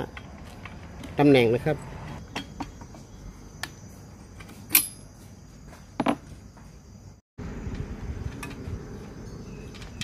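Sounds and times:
metal tools clinking: 4.4s - 5.1s.

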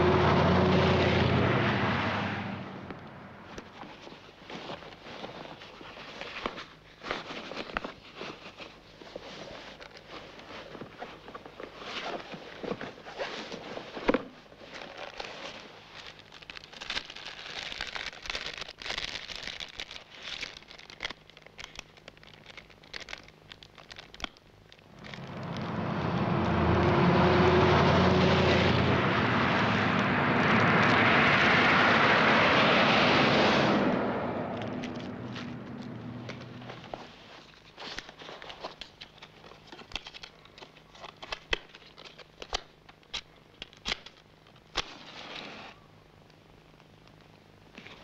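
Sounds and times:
highway traffic passing: 0.0s - 3.6s, 24.9s - 37.0s
low crackly background: 2.7s - 26.0s.

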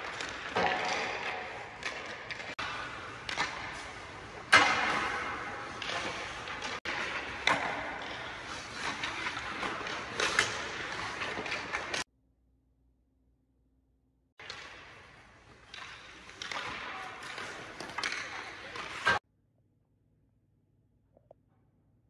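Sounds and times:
skate blades scraping ice: 0.0s - 12.0s, 14.4s - 19.2s
sticks striking pucks: 0.0s - 12.0s, 14.4s - 19.2s
pucks hitting boards and net: 0.0s - 12.1s, 14.4s - 19.2s.

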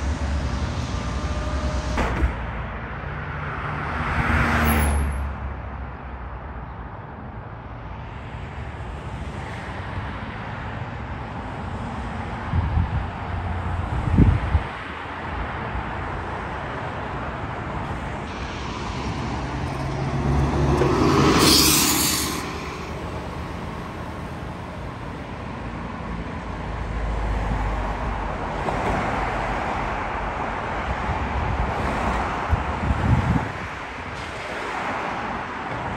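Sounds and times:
bus driving past: 0.0s - 5.5s, 15.1s - 35.9s
cars rumbling past: 0.0s - 6.7s, 7.3s - 35.9s
bus brake hiss: 21.1s - 23.0s.

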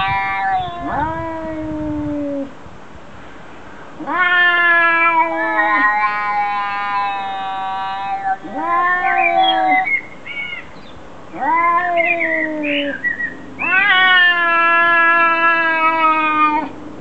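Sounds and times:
cat short cry: 0.0s - 2.5s, 4.0s - 9.9s, 11.4s - 12.9s, 13.6s - 16.7s
cats yowling: 0.0s - 2.5s, 4.0s - 10.0s, 11.3s - 16.8s.

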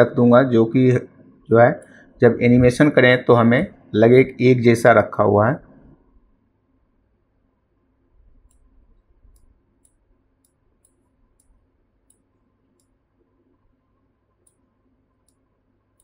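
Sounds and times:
computer mouse clicks: 8.4s - 13.0s, 14.4s - 16.0s.

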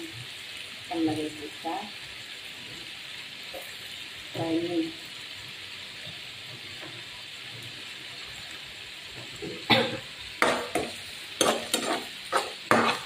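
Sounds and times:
onions sizzling in oil: 0.0s - 13.0s
utensil scraping a pan: 10.4s - 13.0s.

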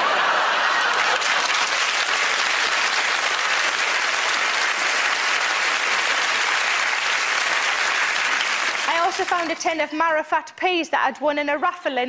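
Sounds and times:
audience applauding: 0.0s - 10.0s.

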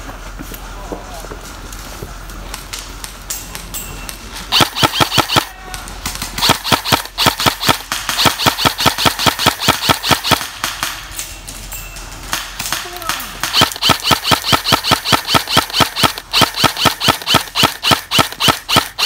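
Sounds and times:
airsoft gun firing rapid shots: 4.5s - 11.0s, 12.3s - 19.0s.

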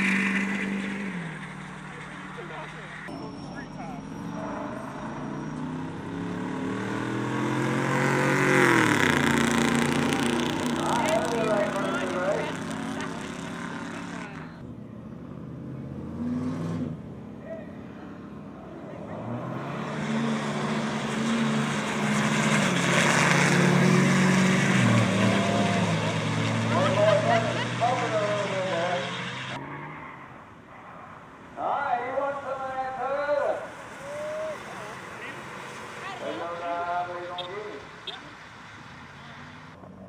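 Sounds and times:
pickup truck engines racing: 0.0s - 40.0s.

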